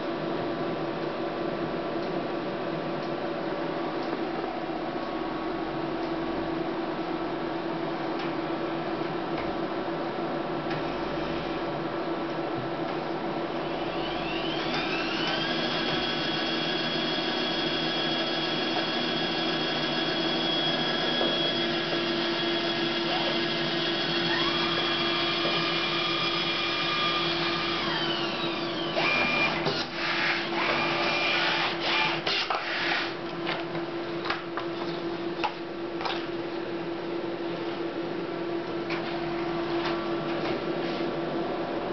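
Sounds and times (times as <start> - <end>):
printer motor whine: 13.5 - 33.1.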